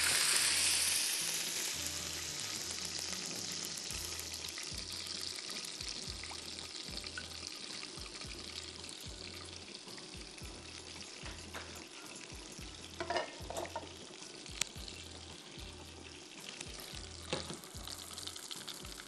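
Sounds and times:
food sizzling in a pan: 0.0s - 19.0s
music with bass beat: 1.8s - 7.4s, 8.0s - 9.6s, 10.2s - 13.0s, 14.5s - 18.2s.

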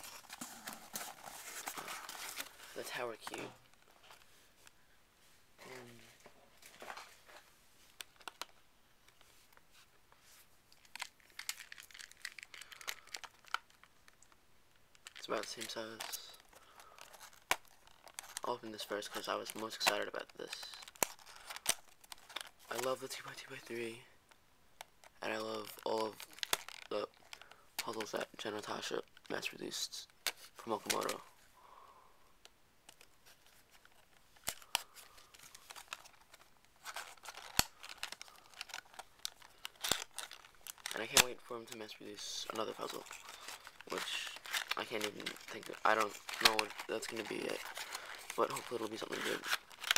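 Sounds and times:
plastic box crinkling and clicking: 24.8s - 28.1s, 33.8s - 41.8s, 42.5s - 49.9s.

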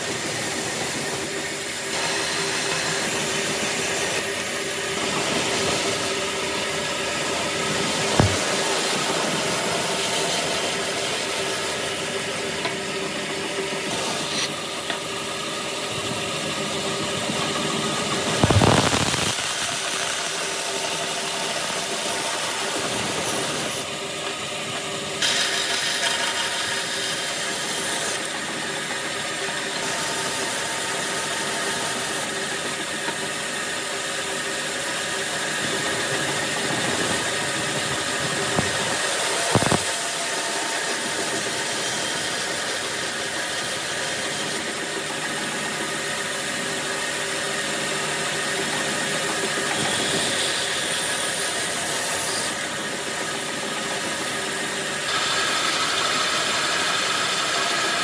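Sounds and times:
band saw cutting wood: 0.0s - 58.0s
sharp knock: 8.2s - 8.5s.

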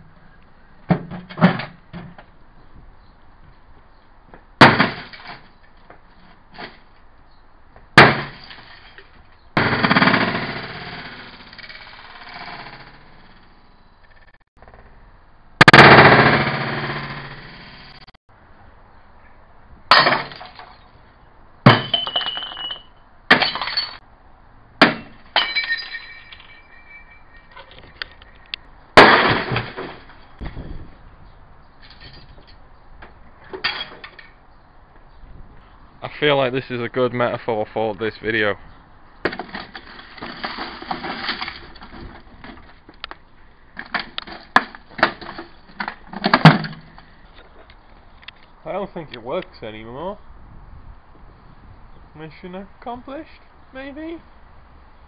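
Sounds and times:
axe smashing microwave: 4.6s - 5.3s, 8.0s - 8.4s, 29.0s - 30.1s
sledgehammer crunching broken glass: 4.6s - 5.5s, 8.0s - 9.0s, 19.9s - 20.8s, 21.7s - 24.0s, 24.8s - 27.6s, 29.0s - 30.3s, 39.3s - 42.1s
debris clinking: 19.9s - 20.9s, 21.7s - 24.0s, 24.8s - 30.4s
glass crunching: 21.7s - 24.0s, 24.8s - 30.3s
short metallic ring: 25.4s - 28.6s.

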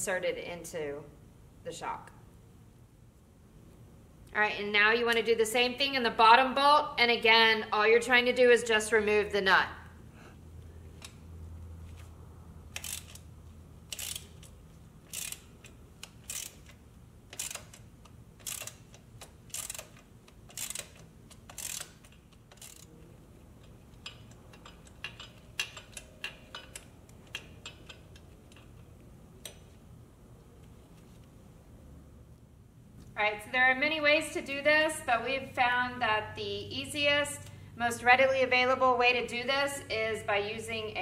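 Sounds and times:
socket ratchet clicking: 12.7s - 29.7s.

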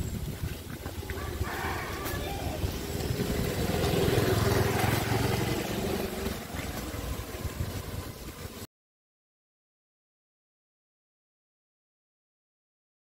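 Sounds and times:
motor scooter riding past: 0.8s - 8.7s.

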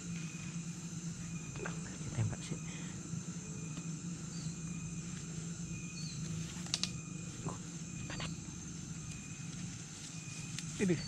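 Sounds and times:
insects droning: 0.0s - 11.0s
sharp clicks: 6.6s - 7.0s.

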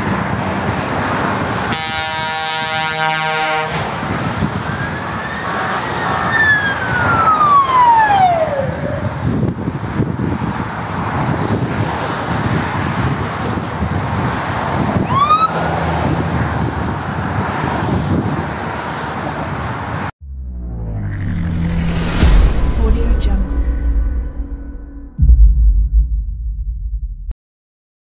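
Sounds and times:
motorway traffic: 0.0s - 24.8s
fire engine siren: 1.6s - 9.6s, 14.9s - 16.2s.

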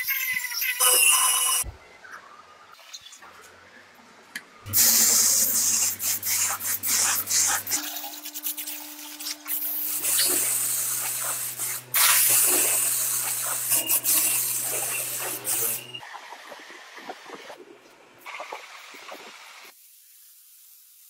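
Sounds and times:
paint sprayer hissing: 4.7s - 15.9s.

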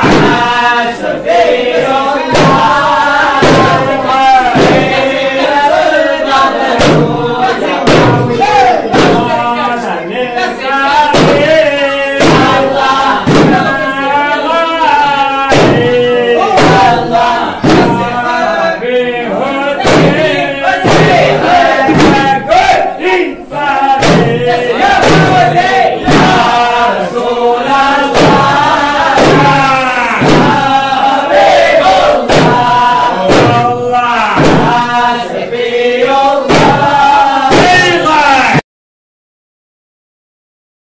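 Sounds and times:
frame drums beating: 0.0s - 9.8s, 10.5s - 18.6s, 19.8s - 22.8s, 23.8s - 38.6s
men chanting: 0.0s - 38.6s.

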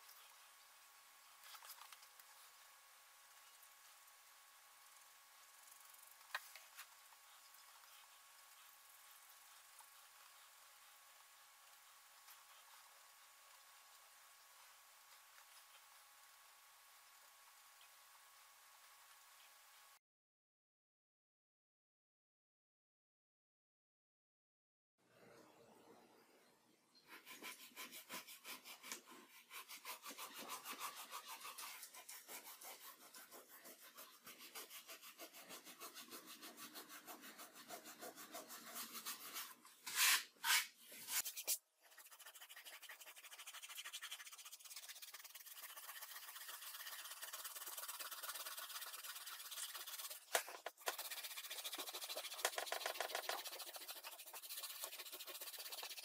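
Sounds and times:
rubbing strokes on paper: 27.1s - 56.0s.

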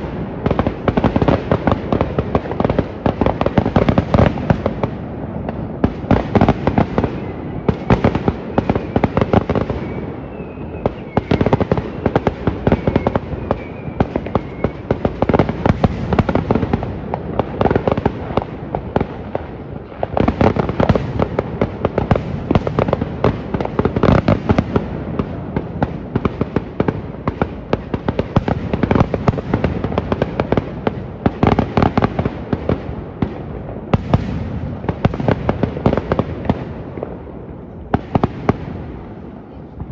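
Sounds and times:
fireworks bangs and crackling pops: 0.0s - 39.9s
faint wavering whistle: 9.7s - 12.1s, 12.7s - 14.9s.

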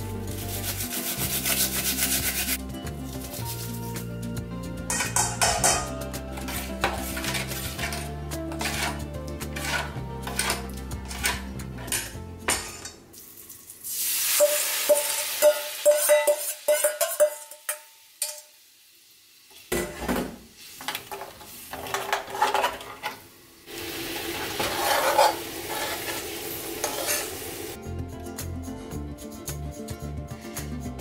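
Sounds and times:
spoon scraping metal bowl: 6.4s - 12.2s, 24.6s - 27.4s
sauce sizzling: 13.1s - 19.7s, 23.3s - 27.8s
spoon tapping in frying pan: 14.4s - 18.5s.

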